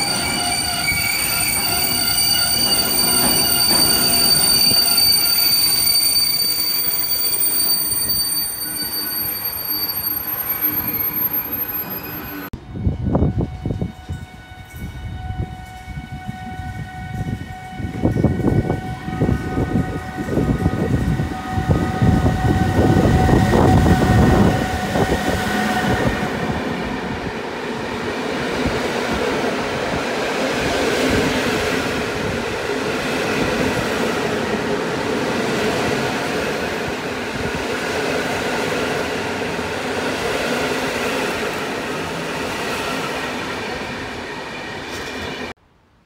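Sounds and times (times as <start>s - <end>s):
train wheels clattering on rails: 1.2s - 6.2s.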